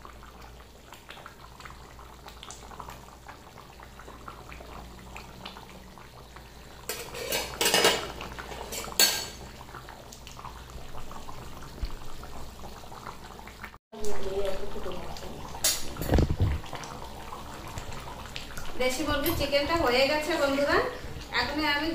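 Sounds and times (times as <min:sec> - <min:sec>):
curry bubbling in a pan: 0:00.0 - 0:21.9
metal spatula scraping a pan: 0:06.9 - 0:08.0.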